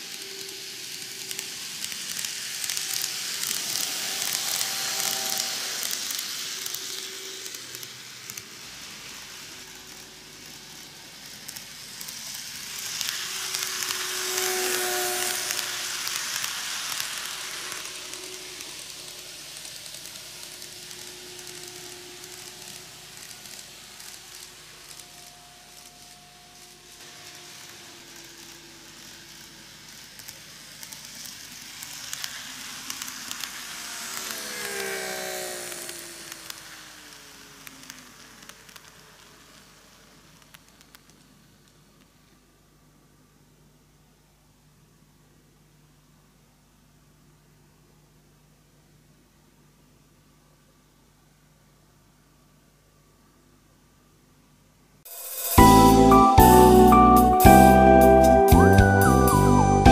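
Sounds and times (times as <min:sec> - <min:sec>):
model train wheels rattling: 0:00.0 - 0:41.8.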